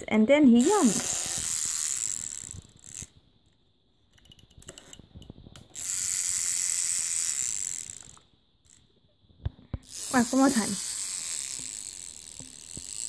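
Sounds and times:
clockwork motor buzzing: 0.5 - 3.2, 5.8 - 8.9, 9.8 - 13.0
wind-up toy clicks: 0.6 - 3.2, 4.2 - 8.9, 9.8 - 13.0.

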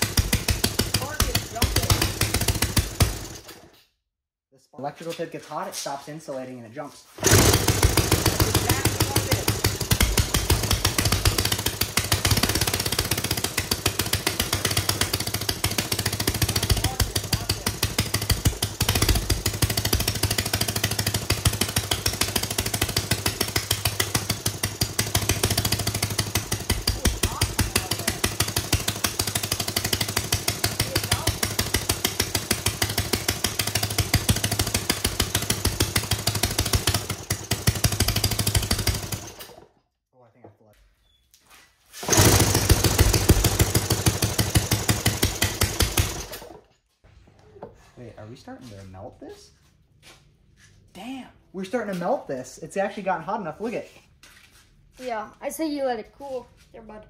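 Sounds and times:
small engine running roughly: 0.0 - 3.7, 7.2 - 39.8, 42.0 - 46.7.

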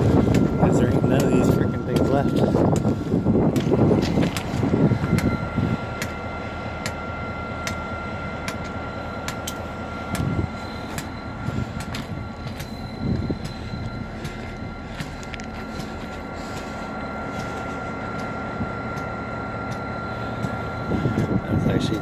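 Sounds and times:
footsteps on gravel ballast: 0.0 - 5.2, 10.2 - 18.2
diesel locomotive idling: 0.0 - 22.0.

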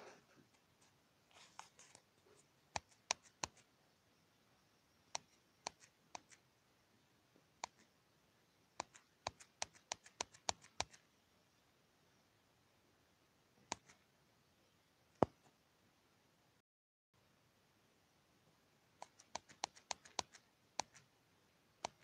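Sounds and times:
sharp short clicks: 5.1 - 6.4, 8.8 - 11.0, 19.0 - 21.1.

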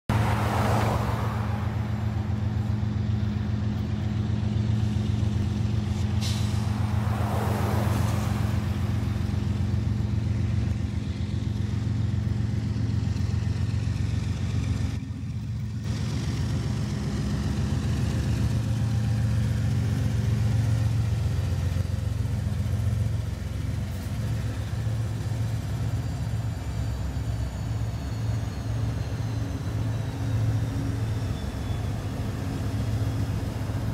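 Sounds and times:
road vehicle swishing past: 0.0 - 11.6
diesel locomotive engine drone: 0.0 - 33.9.

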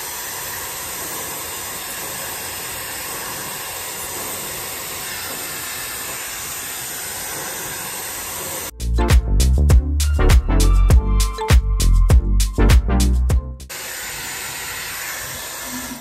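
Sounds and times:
hair dryer blowing air: 0.0 - 8.7, 13.7 - 16.0.

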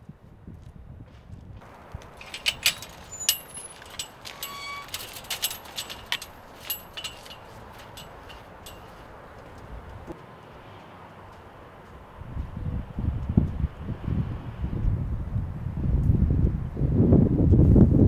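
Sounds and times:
metal gate latch clanking: 2.2 - 9.0.

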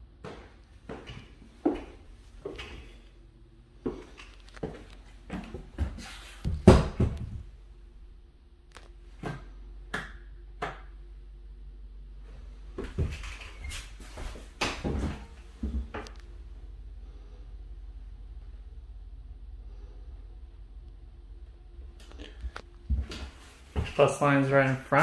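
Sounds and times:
faint steady hum: 0.0 - 25.0
footsteps on tile floor: 0.2 - 3.0, 3.8 - 7.3.

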